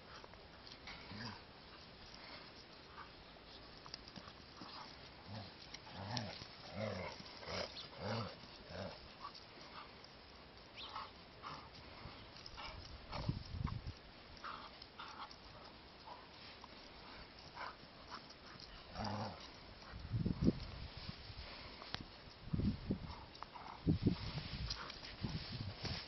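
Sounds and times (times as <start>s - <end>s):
dogs play-growling: 0.1s - 10.1s, 10.9s - 13.5s, 14.4s - 20.6s, 23.0s - 25.0s.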